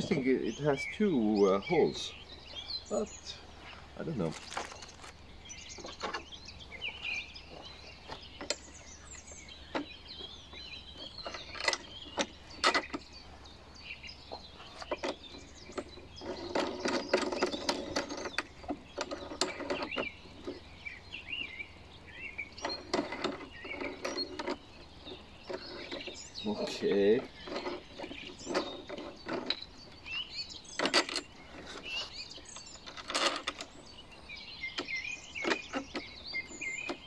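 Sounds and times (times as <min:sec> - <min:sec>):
plastic parts clicking and knocking: 0:04.1 - 0:05.2, 0:22.6 - 0:29.6.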